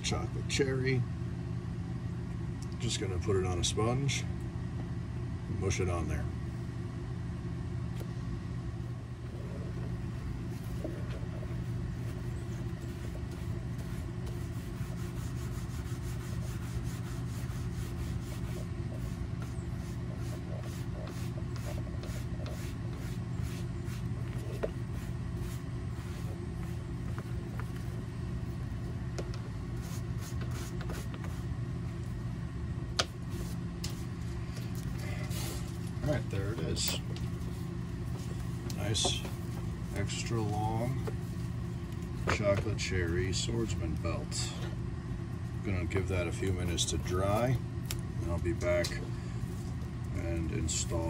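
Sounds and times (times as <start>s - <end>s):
low background hum: 0.0s - 51.0s
sponge rubbing on leather: 9.4s - 28.8s, 29.7s - 31.6s, 33.2s - 34.2s.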